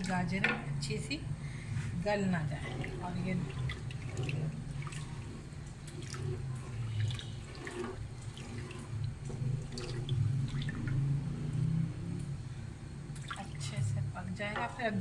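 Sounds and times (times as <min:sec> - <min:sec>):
low steady hum: 0:00.0 - 0:15.0
milk sloshing as spoon stirs: 0:01.8 - 0:11.7.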